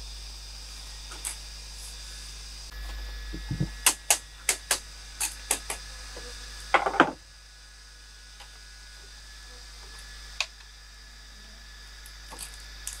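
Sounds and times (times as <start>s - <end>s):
tool knocking on bamboo: 3.3s - 4.8s, 6.8s - 7.2s.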